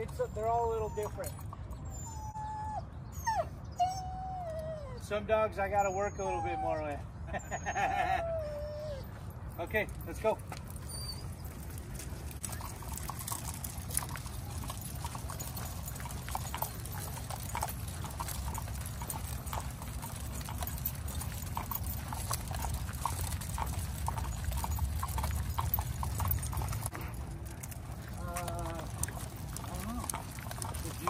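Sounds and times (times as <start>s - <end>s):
dog claws clicking on asphalt: 11.4s - 31.0s.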